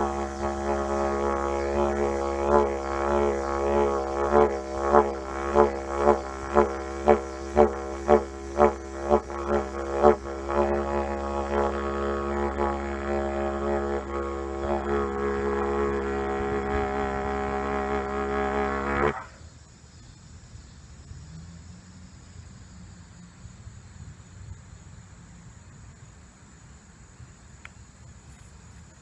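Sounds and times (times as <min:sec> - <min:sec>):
didgeridoo drone: 0:00.0 - 0:19.4
rhythmic didgeridoo pulses: 0:00.0 - 0:19.4.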